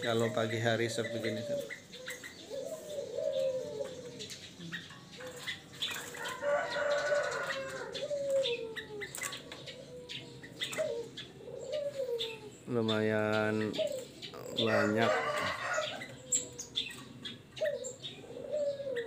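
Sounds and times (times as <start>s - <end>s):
doves cooing: 0.0s - 19.0s
songbirds chirping: 0.0s - 19.0s
rooster crowing: 6.2s - 8.1s, 14.5s - 16.7s.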